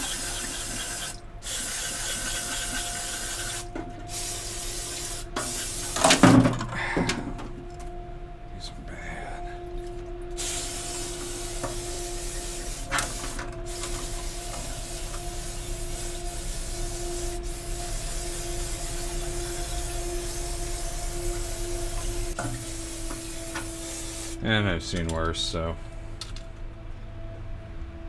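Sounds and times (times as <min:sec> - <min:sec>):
aerosol spray hiss: 0:00.0 - 0:06.2, 0:10.4 - 0:24.4
low hum: 0:00.0 - 0:28.0.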